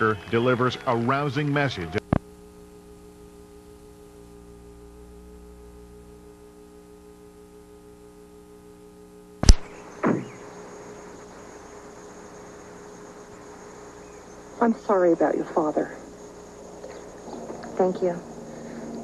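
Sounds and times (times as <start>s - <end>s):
low buzzing hum: 0.0s - 19.0s
tape hiss with high whine: 0.0s - 19.0s
sharp click: 9.4s - 10.3s.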